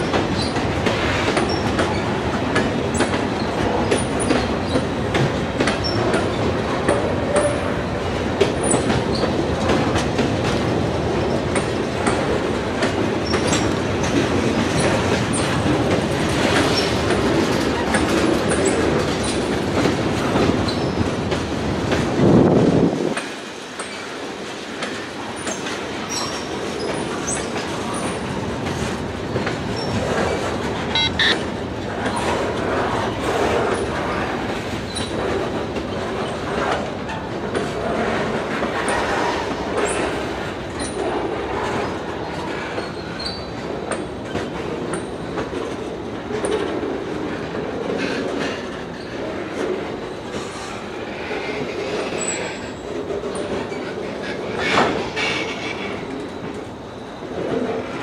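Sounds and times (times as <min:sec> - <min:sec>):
train wheels clattering: 0:00.0 - 0:31.4, 0:32.0 - 0:58.0
high wheel squeals: 0:31.0 - 0:31.4.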